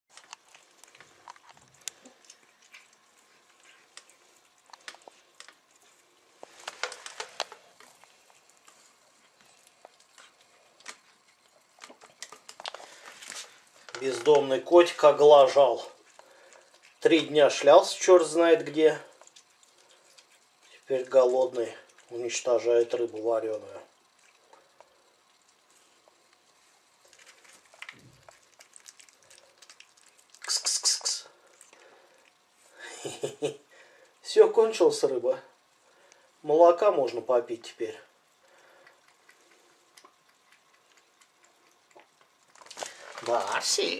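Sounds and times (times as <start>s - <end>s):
cat chewing clicks: 38.8s - 42.8s.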